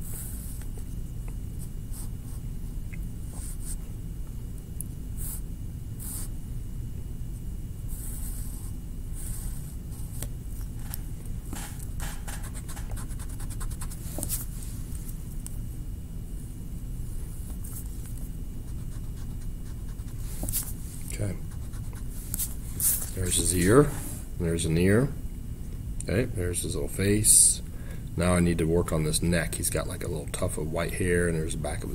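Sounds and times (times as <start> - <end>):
low room hum: 0.0 - 31.9
drawing tool scratching on paper: 11.6 - 14.3, 18.7 - 20.7.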